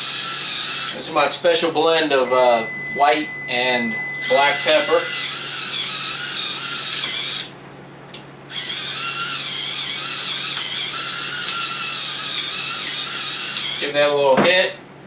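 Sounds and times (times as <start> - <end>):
electric pepper grinder whirring: 0.0 - 1.0, 4.2 - 7.5, 8.5 - 13.9.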